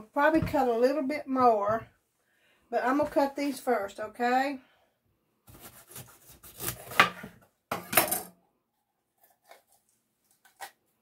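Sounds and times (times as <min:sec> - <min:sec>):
knife cutting peppers on wooden board: 0:05.5 - 0:07.4.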